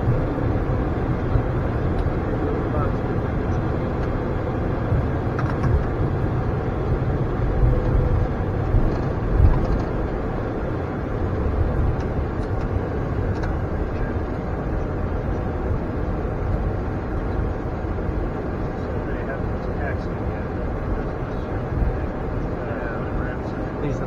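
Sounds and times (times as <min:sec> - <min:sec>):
aircraft taxiing rumble and hiss: 0:00.0 - 0:24.0.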